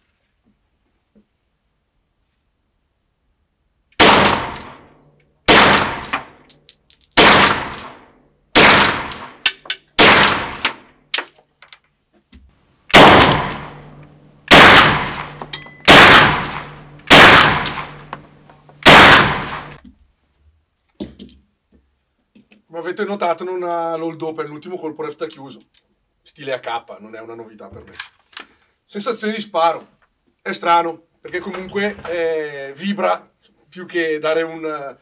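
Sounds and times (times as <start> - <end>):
carbine gunshots ringing: 4.0 - 4.8, 5.5 - 8.0, 8.6 - 9.4, 10.0 - 10.8, 12.9 - 19.8
light metallic clinks: 6.5 - 7.2, 15.4 - 15.9.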